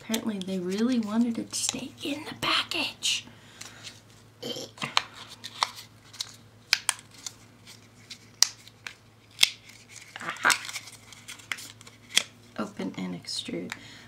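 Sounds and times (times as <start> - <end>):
plastic packaging crackling: 5.0 - 12.4.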